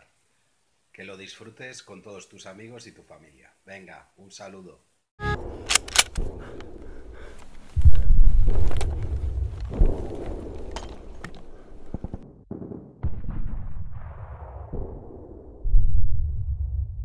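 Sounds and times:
sharp gunshots: 5.3 - 7.1
loud deep boom: 12.6 - 17.0.

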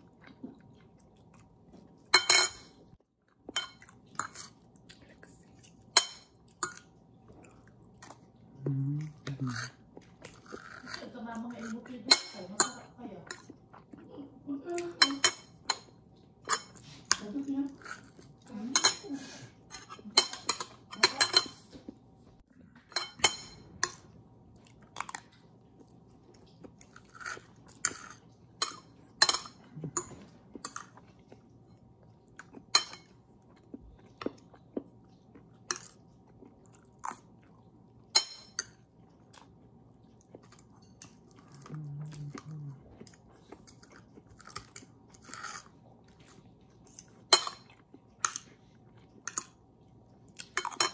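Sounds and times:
chewing: 0.0 - 12.1, 12.8 - 50.9
cutlery clinking on dishes: 2.1 - 2.8, 5.9 - 6.8, 19.7 - 21.6, 22.9 - 24.0, 27.2 - 31.0, 46.9 - 48.5, 50.5 - 50.9.

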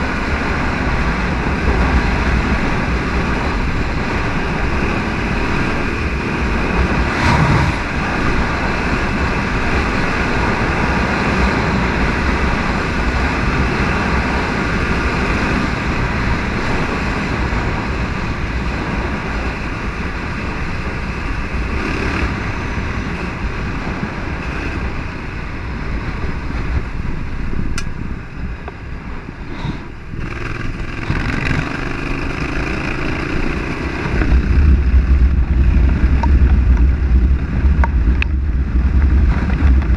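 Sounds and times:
motorcycle engine running: 0.0 - 39.9
wind and road noise: 0.0 - 39.9.

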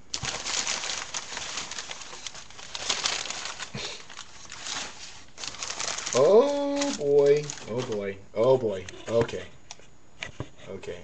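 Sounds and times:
packing material rustling and crinkling: 0.0 - 8.2.

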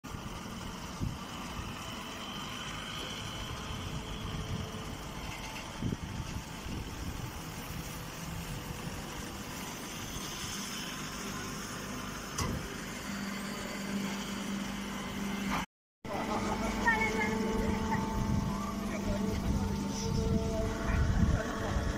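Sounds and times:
baling machine running: 0.1 - 21.9
low steady hum: 16.1 - 21.9.

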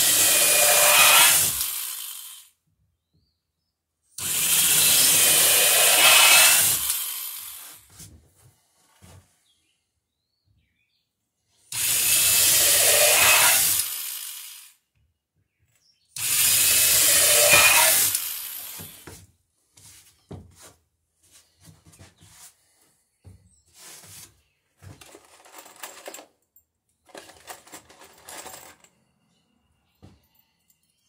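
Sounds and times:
electric drill boring through wood: 0.0 - 2.5, 4.2 - 7.8, 11.7 - 14.8, 16.2 - 19.2
clatters and knocks of handling: 23.3 - 29.2.

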